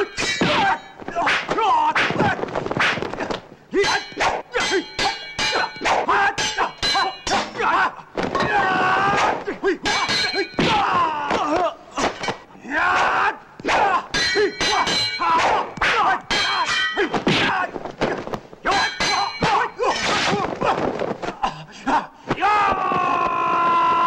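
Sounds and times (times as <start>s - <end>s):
metallic sword clashes: 0.0s - 2.2s, 3.8s - 7.7s, 9.8s - 10.8s, 14.1s - 17.5s, 18.7s - 20.4s
shouts and grunts: 0.0s - 2.4s, 3.7s - 24.0s.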